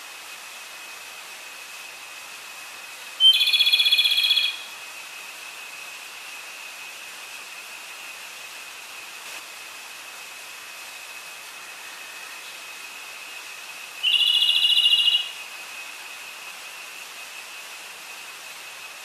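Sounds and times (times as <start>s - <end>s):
thin high whine and hiss: 0.0s - 19.0s
bird trill: 3.2s - 4.7s, 14.0s - 15.4s.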